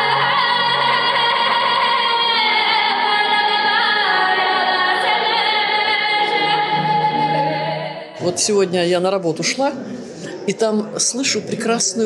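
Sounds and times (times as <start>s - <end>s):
woman singing into a microphone: 0.0s - 8.5s.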